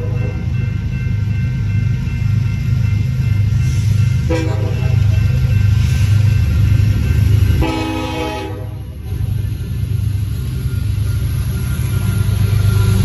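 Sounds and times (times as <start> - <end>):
locomotive air horn blasts: 4.3 - 5.0, 7.6 - 9.0.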